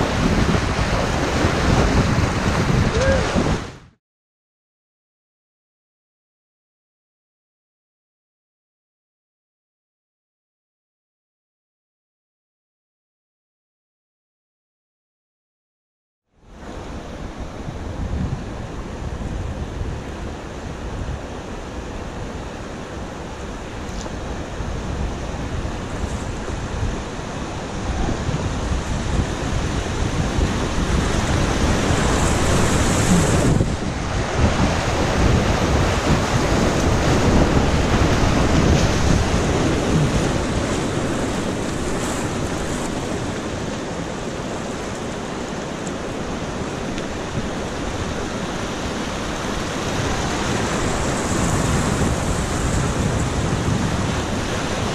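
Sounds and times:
whitewater rushing: 0.0 - 3.8, 16.7 - 54.9
wind buffeting microphone: 0.0 - 3.9, 17.2 - 54.9.

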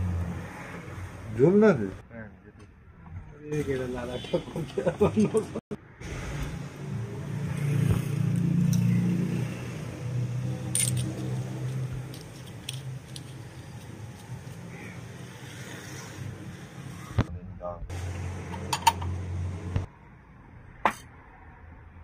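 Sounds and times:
metallic clicks and clinks: 10.6 - 14.6.

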